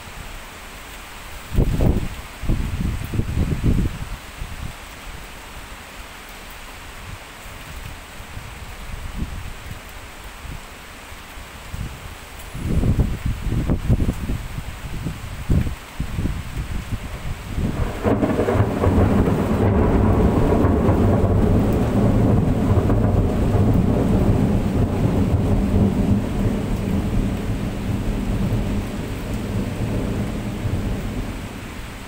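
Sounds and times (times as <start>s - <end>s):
heavy rain: 0.0s - 32.0s
thunder rolling: 17.6s - 31.8s.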